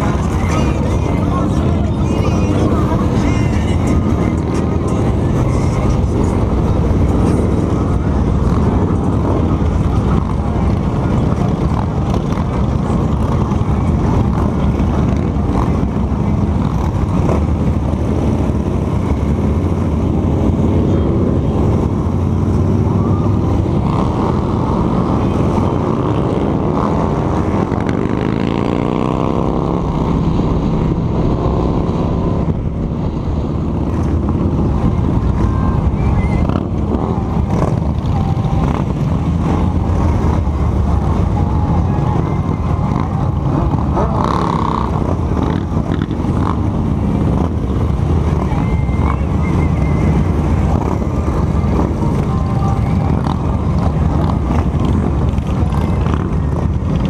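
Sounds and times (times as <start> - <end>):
motorcycle engine running: 0.0 - 57.0
wind rush: 5.8 - 44.0
engine note rising: 16.5 - 35.2.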